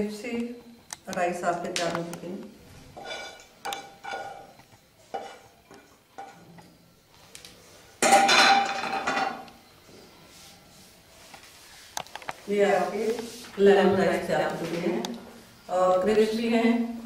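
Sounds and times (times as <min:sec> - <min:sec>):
spoon tapping and scraping pan: 0:03.0 - 0:06.5
pan clattering down: 0:08.0 - 0:09.5.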